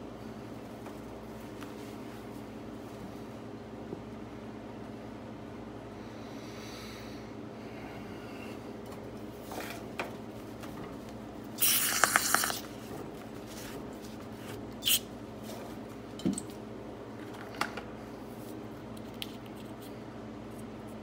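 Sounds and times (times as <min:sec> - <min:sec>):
hissing spray burst: 0:11.6 - 0:12.6.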